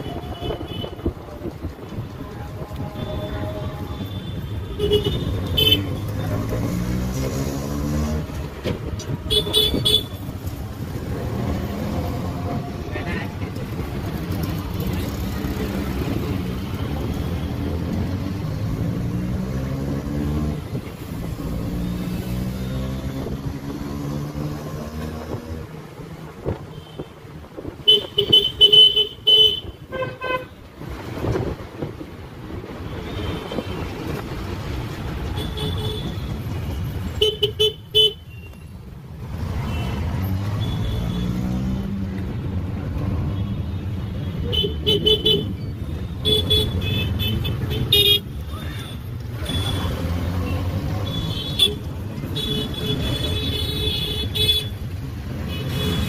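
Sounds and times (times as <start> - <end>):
auto rickshaw engine running: 0.0 - 26.4
vehicle horns honking: 2.9 - 6.2, 9.2 - 10.3, 27.8 - 30.6, 44.2 - 45.6, 46.2 - 56.0.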